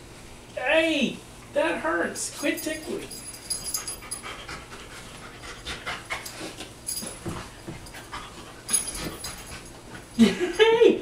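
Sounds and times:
dog panting: 3.4 - 10.1.

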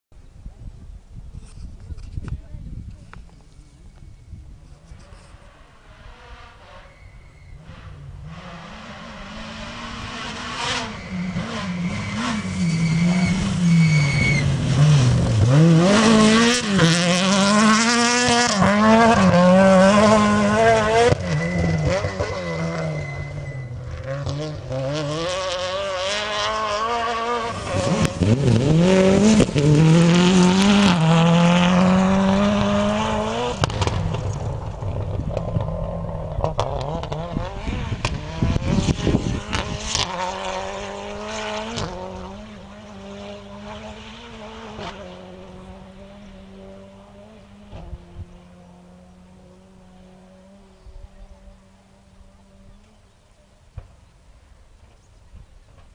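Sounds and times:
rally car engine revving: 4.9 - 53.2.

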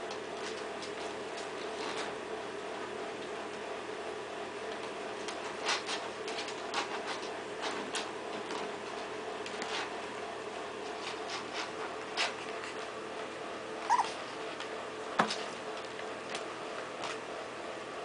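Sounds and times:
puppy squeaking: 13.8 - 14.3.

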